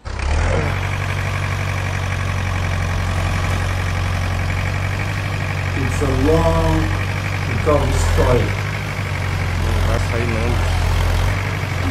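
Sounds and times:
tractor diesel engine droning: 0:00.0 - 0:11.9.

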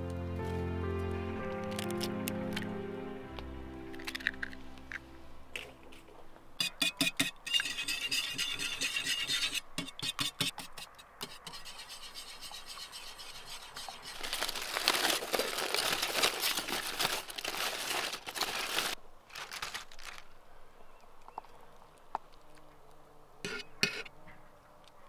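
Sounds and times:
utensils scraping: 0:05.6 - 0:15.0.

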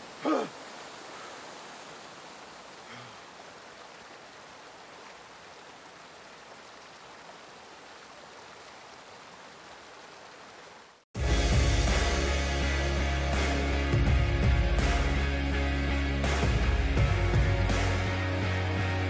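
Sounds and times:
waterfall rushing into pool: 0:00.0 - 0:11.0.

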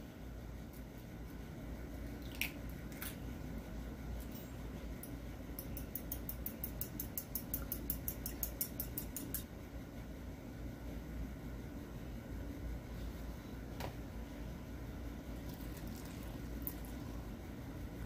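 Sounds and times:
low steady hum: 0:00.0 - 0:18.0
fork clinking in ceramic bowl: 0:05.6 - 0:09.5.

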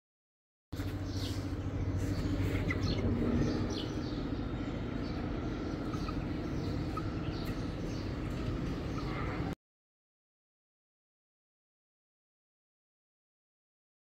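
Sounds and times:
birds chirping: 0:00.8 - 0:09.6
steady low hum: 0:00.8 - 0:09.6.

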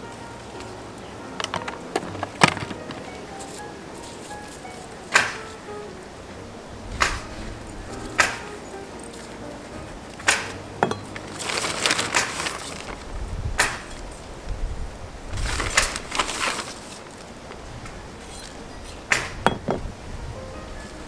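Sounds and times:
plastic bag rustling: 0:00.6 - 0:05.7, 0:06.8 - 0:14.3, 0:15.3 - 0:18.7
sharp taps and clicks: 0:08.0 - 0:08.6.

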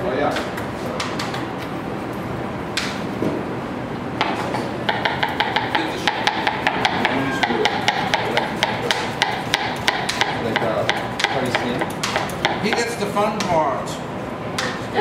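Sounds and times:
knife chopping on plastic board: 0:04.2 - 0:13.5.

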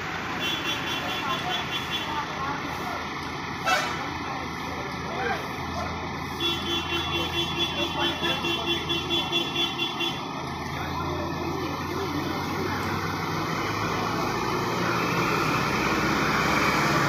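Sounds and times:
bus driving past: 0:00.0 - 0:17.0.

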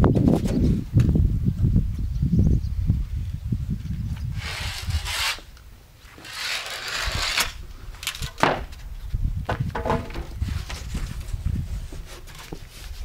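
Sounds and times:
hands rubbing on wall strip: 0:04.4 - 0:05.5
sharp knocks: 0:09.5 - 0:10.4.

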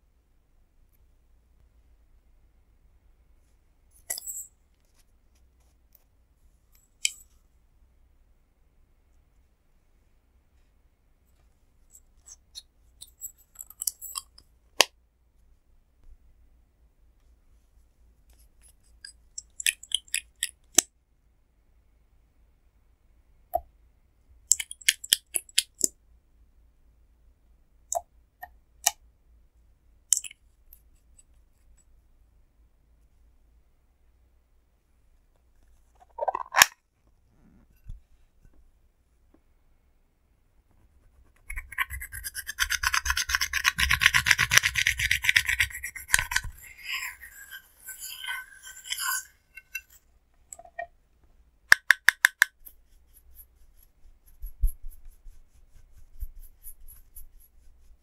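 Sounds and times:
tool scratching face powder: 0:40.8 - 0:50.0, 0:52.2 - 0:58.0.

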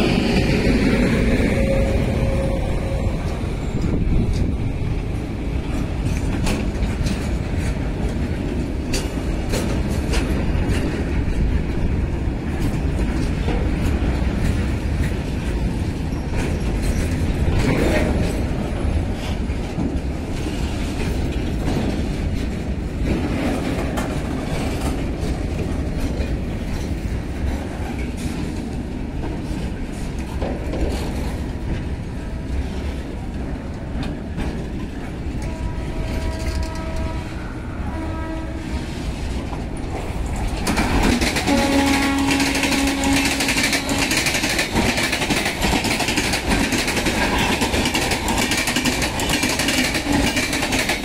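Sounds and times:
freight train wheels rumbling: 0:00.0 - 0:51.0
train horn: 0:01.0 - 0:03.9, 0:35.4 - 0:39.2, 0:41.4 - 0:44.4.

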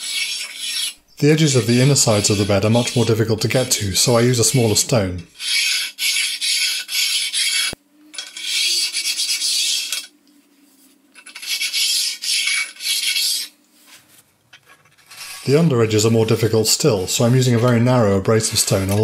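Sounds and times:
stone rasping on metal: 0:00.0 - 0:10.1, 0:11.2 - 0:13.5, 0:15.0 - 0:15.6, 0:17.2 - 0:19.0.

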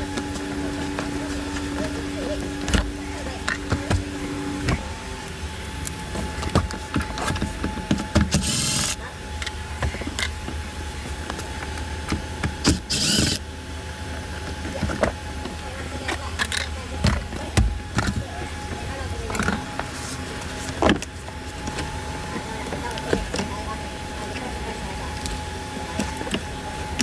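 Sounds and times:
cordless drill running: 0:08.3 - 0:09.0, 0:12.6 - 0:13.4.

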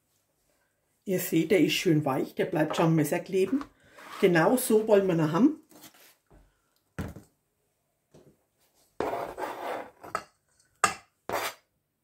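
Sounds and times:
masher scraping a metal bowl: 0:09.0 - 0:10.2, 0:11.3 - 0:11.6.

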